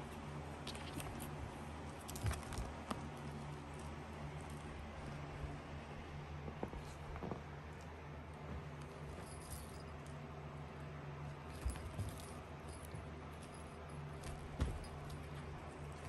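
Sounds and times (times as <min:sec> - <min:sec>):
low steady hum: 0:00.0 - 0:16.0
cat toy jingling and rattling: 0:08.9 - 0:10.2, 0:11.4 - 0:16.0.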